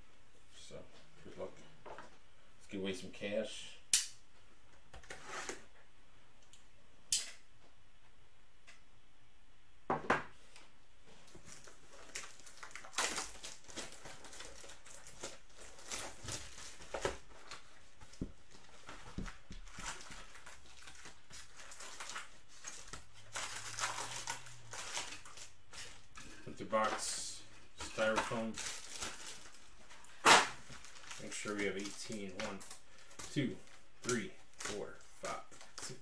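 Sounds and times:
foil card packs rustling: 0:11.2 - 0:36.0
shrink-wrap tearing and crinkling: 0:11.4 - 0:27.1, 0:27.8 - 0:36.0.

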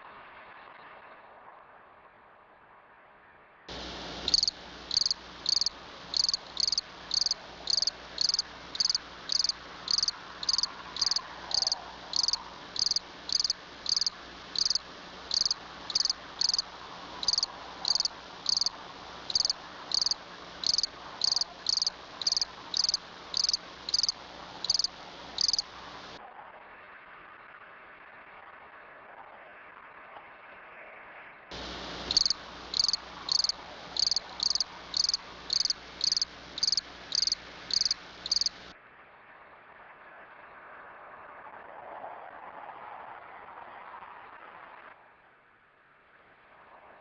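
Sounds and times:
faint steady hum: 0:03.7 - 0:26.2, 0:31.5 - 0:38.8
high insect-like chirps: 0:04.2 - 0:25.9, 0:31.5 - 0:38.6.

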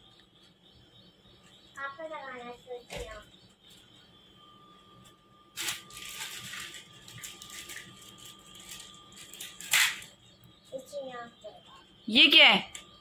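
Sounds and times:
plastic bag crinkling: 0:05.6 - 0:10.1.

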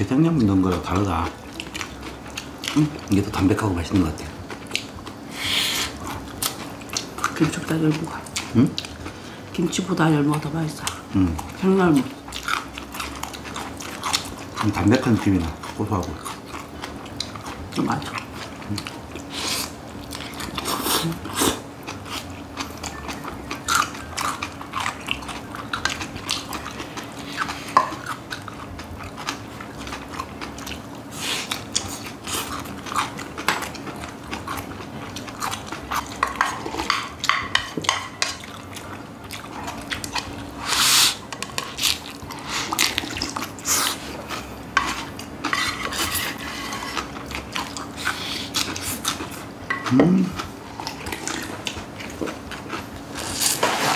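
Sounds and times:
low steady hum: 0:00.0 - 0:53.9
chewing: 0:00.4 - 0:53.9.

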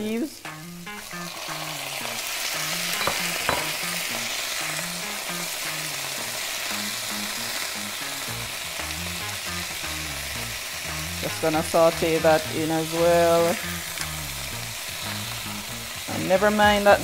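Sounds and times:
vegetables sizzling in a frying pan: 0:00.0 - 0:17.0
spatula knocking against pan: 0:02.9 - 0:03.8.

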